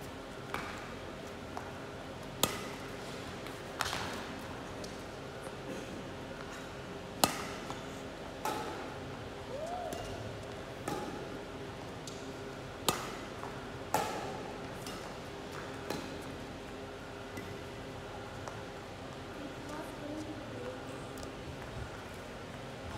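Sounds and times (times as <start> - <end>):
rackets hitting shuttlecock: 2.4 - 2.9, 7.2 - 7.8, 9.8 - 10.2, 10.8 - 11.3, 12.1 - 16.2.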